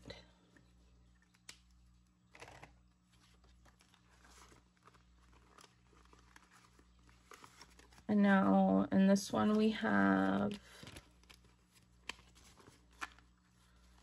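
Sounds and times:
low steady hum: 0.0 - 14.0
paper bills rustling: 2.3 - 8.1.

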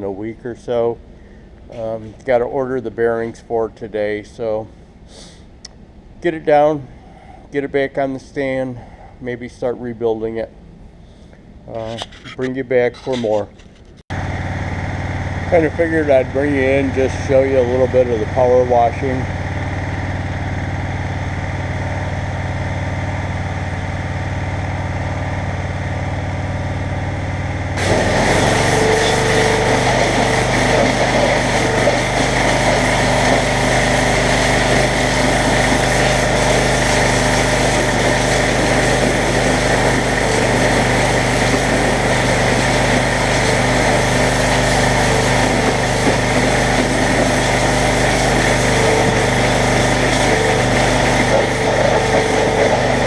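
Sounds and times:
pressure washer engine running: 14.1 - 53.0
water jet hissing on metal: 27.8 - 53.0.

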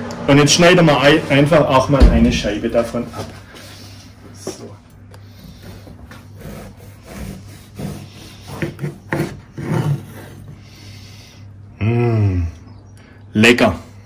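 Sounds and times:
bread knife sawing crusty loaf: 5.3 - 10.9.

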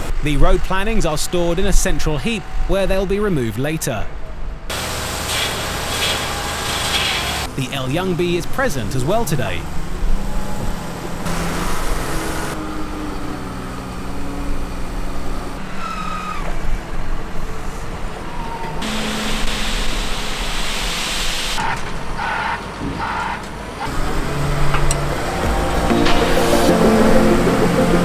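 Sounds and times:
diesel engines running: 0.0 - 28.0
rushing noise: 23.9 - 28.0.

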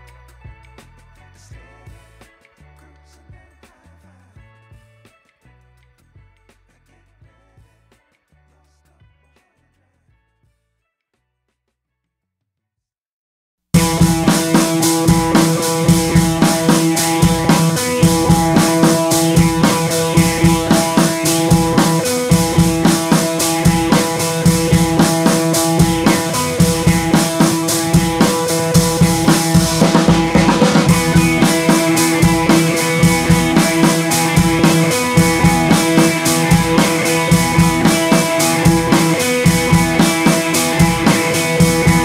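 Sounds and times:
music with drum beat: 13.8 - 42.0.

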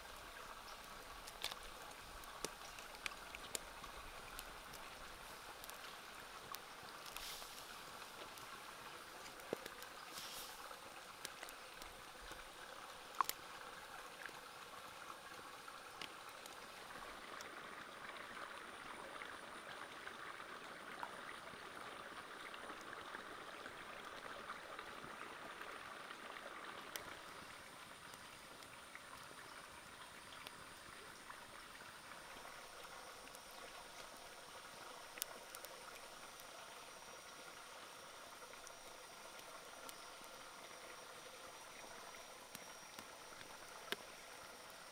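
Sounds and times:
broth bubbling in a wok: 0.0 - 44.9
small clicks and pops: 0.1 - 13.5, 32.4 - 36.5, 41.6 - 44.9.

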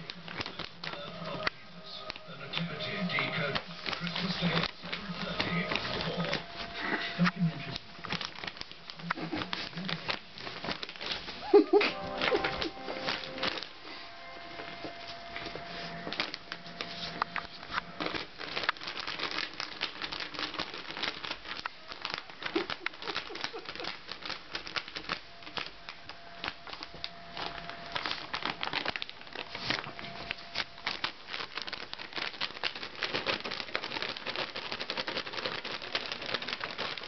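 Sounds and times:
dog digging in plastic bag: 0.0 - 37.0.

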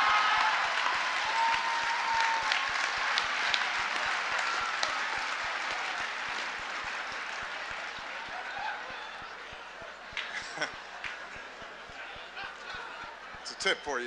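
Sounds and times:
audience applauding: 0.0 - 14.0
audience laughing: 10.2 - 13.8.

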